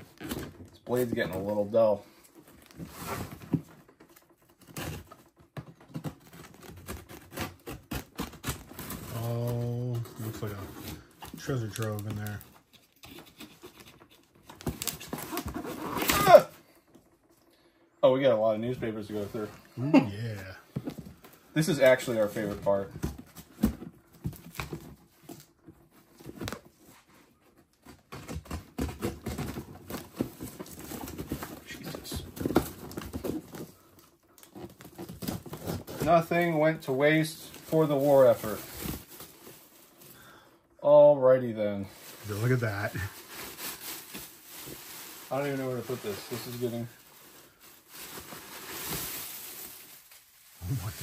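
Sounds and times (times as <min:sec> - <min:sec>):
shredded paper rustling and crackling: 0:35.0 - 0:39.7, 0:41.8 - 0:51.0.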